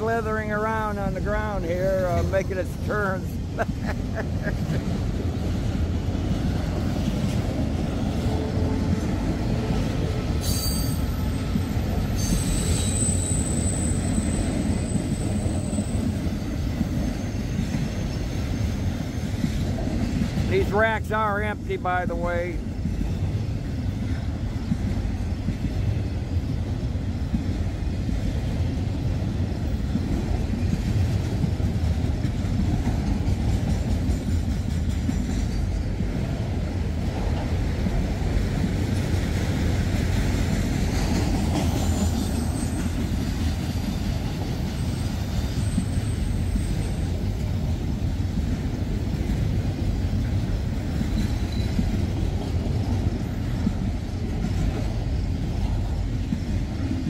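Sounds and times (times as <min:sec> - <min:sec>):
freight train wheels rumbling on rail: 0:00.0 - 0:57.0.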